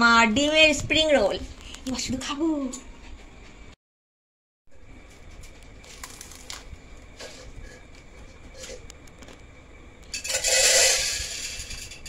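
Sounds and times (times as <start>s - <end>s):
crunchy chewing: 5.0s - 9.5s.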